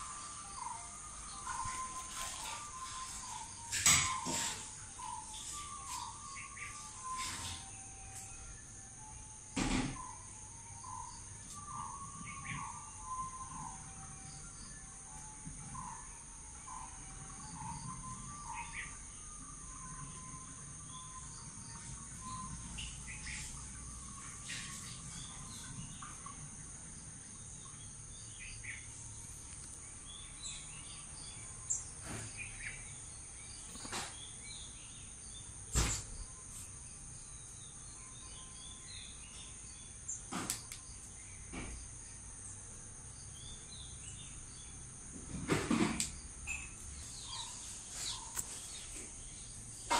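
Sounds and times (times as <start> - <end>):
bird chirps: 0.0 - 26.4, 46.2 - 49.9
high-pitched insect drone: 0.0 - 29.2.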